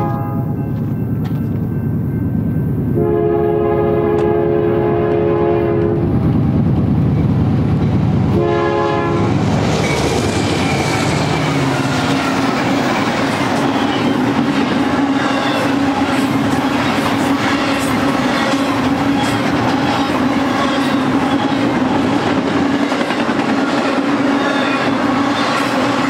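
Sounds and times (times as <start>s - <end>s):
locomotive horn blasts: 0.0s - 0.7s, 3.0s - 6.1s, 8.3s - 9.4s
train wheels rolling on rails: 0.0s - 3.0s, 5.0s - 26.0s
locomotive engine drone: 0.0s - 26.0s.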